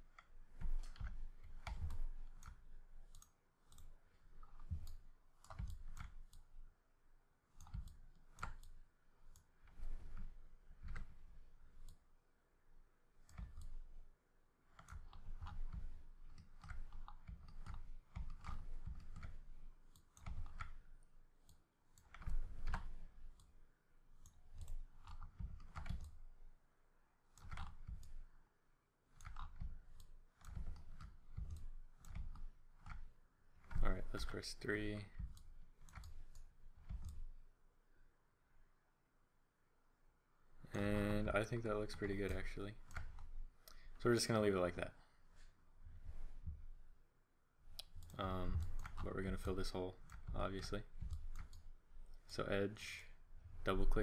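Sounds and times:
computer mouse clicking: 0:00.0 - 0:06.7, 0:07.5 - 0:12.1, 0:13.2 - 0:26.5, 0:27.3 - 0:28.4, 0:29.1 - 0:37.5, 0:40.6 - 0:44.9, 0:47.7 - 0:52.5.

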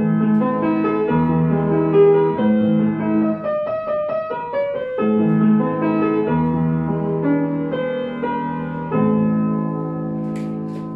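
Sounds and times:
upright piano playing: 0:00.0 - 0:10.9.

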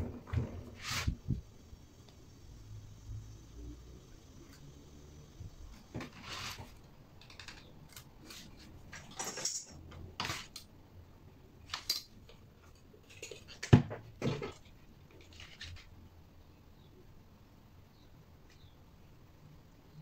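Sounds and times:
wires rustling and scraping: 0:00.0 - 0:02.1, 0:05.4 - 0:10.7, 0:11.6 - 0:16.2.

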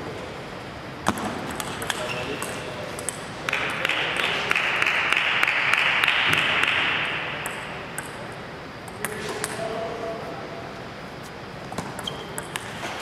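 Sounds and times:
table tennis ball bouncing: 0:01.1 - 0:04.0, 0:06.0 - 0:09.7, 0:11.7 - 0:12.8.

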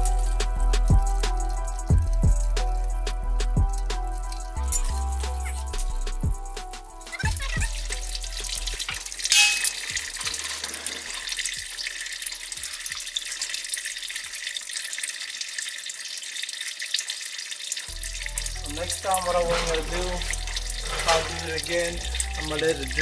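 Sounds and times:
fluid splashing into drain pan: 0:07.9 - 0:23.0.

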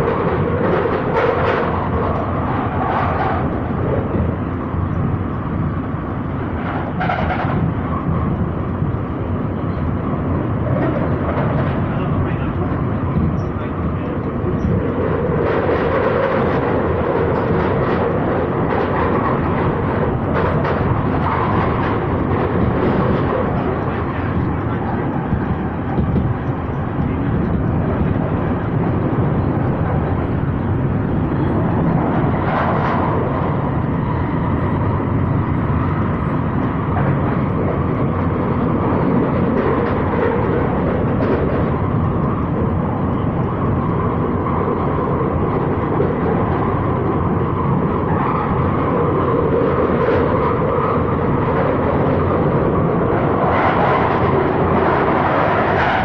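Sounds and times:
train rumbling through tunnel: 0:00.0 - 0:56.0.

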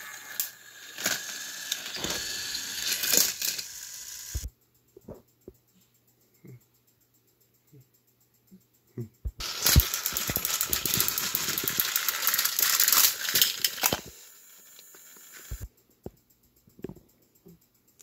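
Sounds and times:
plastic toy trains clattering: 0:00.0 - 0:04.5, 0:09.4 - 0:15.6
faint steady hiss: 0:00.0 - 0:18.0.

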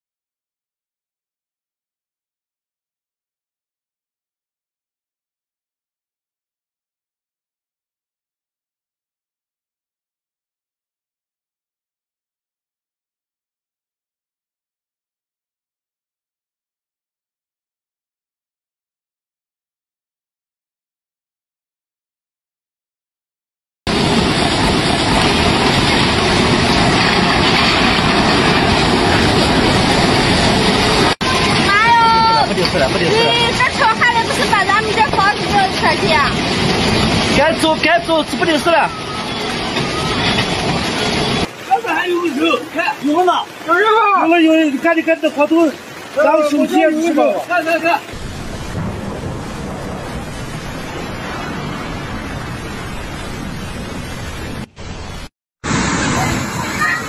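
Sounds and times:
low rumble: 0:23.9 - 0:41.5, 0:48.1 - 0:55.0
wind buffeting microphone: 0:23.9 - 0:41.5, 0:48.1 - 0:54.7
floodwater rushing: 0:23.9 - 0:57.0.

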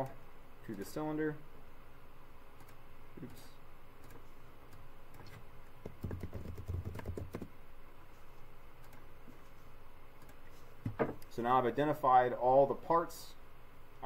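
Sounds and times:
typing on keyboard: 0:06.0 - 0:07.5.

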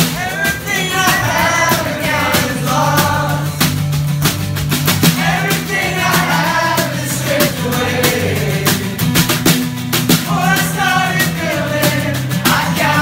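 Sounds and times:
voices singing together: 0:00.0 - 0:04.0, 0:05.0 - 0:13.0
acoustic guitar: 0:00.0 - 0:13.0
sharp percussion hits: 0:00.0 - 0:13.0
steady low notes: 0:00.0 - 0:13.0.

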